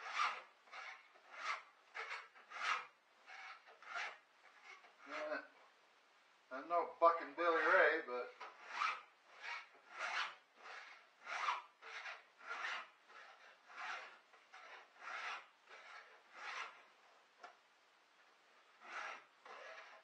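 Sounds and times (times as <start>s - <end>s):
file strokes on chainsaw chain: 0.0s - 5.5s, 7.2s - 17.2s, 18.6s - 20.0s.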